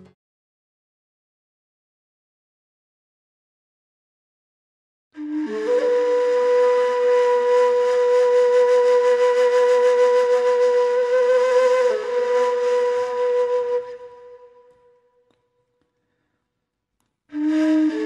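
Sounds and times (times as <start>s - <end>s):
flute holding long note: 5.2s - 15.2s, 17.3s - 18.0s.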